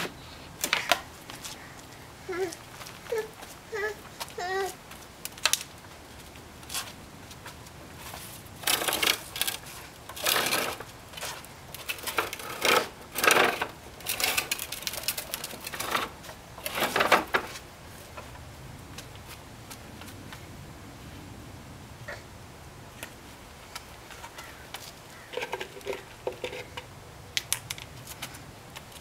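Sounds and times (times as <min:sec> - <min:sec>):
plastic tricycle rattling on bricks: 0:02.3 - 0:18.4, 0:24.0 - 0:29.0.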